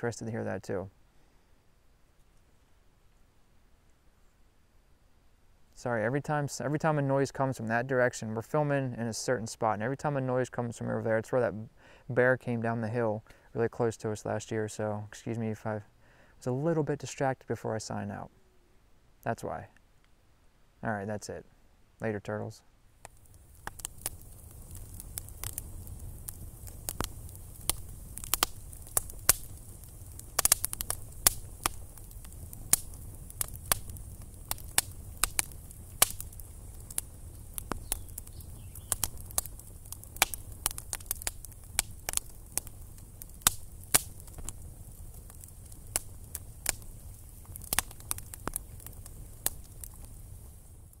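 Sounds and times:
campfire crackling and popping: 0:22.0 - 0:51.0.

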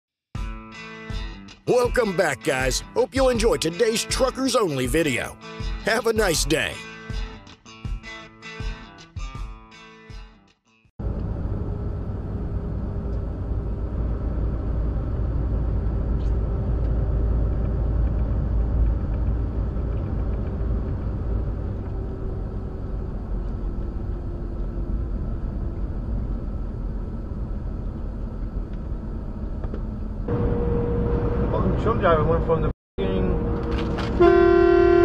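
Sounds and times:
truck engine and road rumble: 0:11.0 - 0:35.0.

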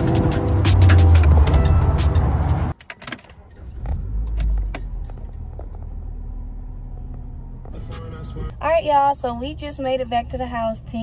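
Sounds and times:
background music: 0:00.0 - 0:02.8
car engine starting and idling: 0:00.0 - 0:11.0
keys jingling: 0:02.7 - 0:05.8.

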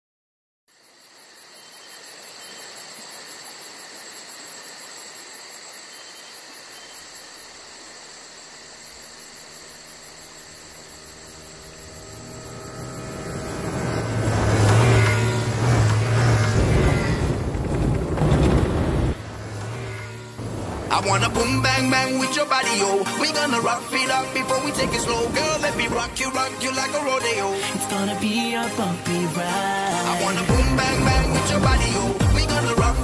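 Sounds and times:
insects chirping: 0:00.7 - 0:33.0
low rumble: 0:10.4 - 0:22.1.

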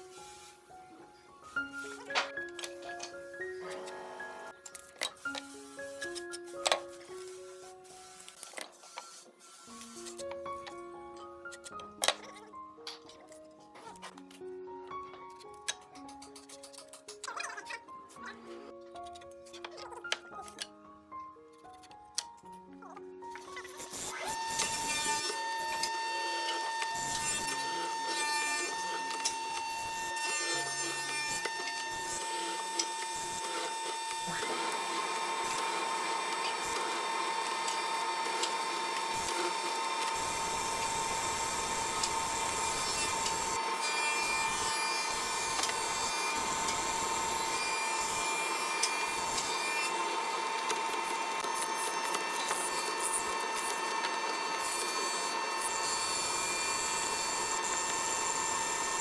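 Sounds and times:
motor whine: 0:24.3 - 0:59.0.

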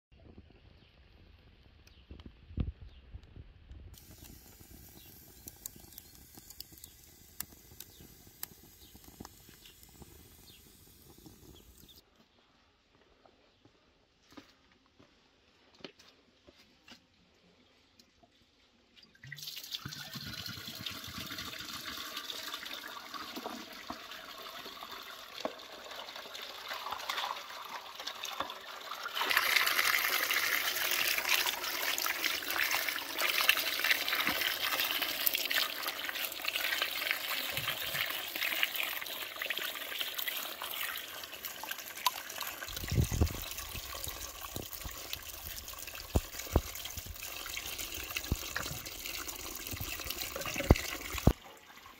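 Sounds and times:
water pouring from a jug: 0:04.0 - 0:12.0, 0:19.1 - 0:51.9.

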